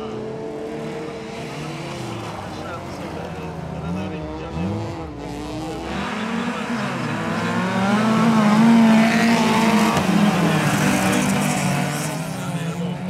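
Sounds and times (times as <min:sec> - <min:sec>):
racing car engines passing: 0:00.0 - 0:13.0.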